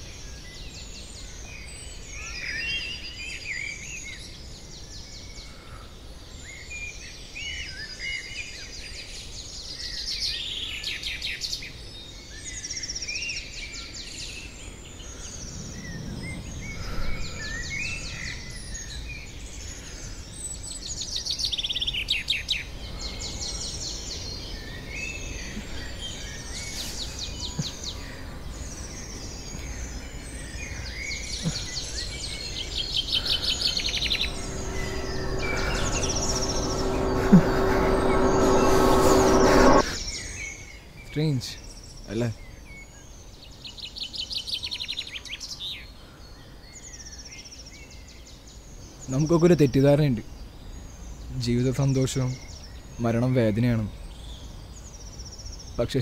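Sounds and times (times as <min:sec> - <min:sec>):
outdoor background noise: 0:00.0 - 0:56.0
birds chirping and singing: 0:22.6 - 0:40.2
low rumble: 0:31.5 - 0:40.0.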